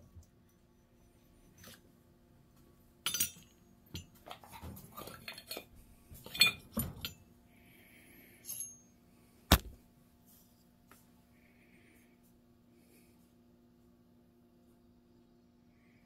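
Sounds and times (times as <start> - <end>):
metal parts clinking and knocking: 3.0 - 7.2, 8.4 - 8.8.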